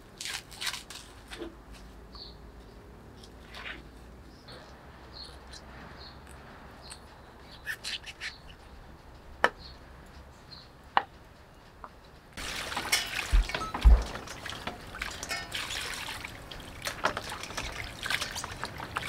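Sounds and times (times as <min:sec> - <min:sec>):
water pouring into metal bowl: 0:12.4 - 0:19.0.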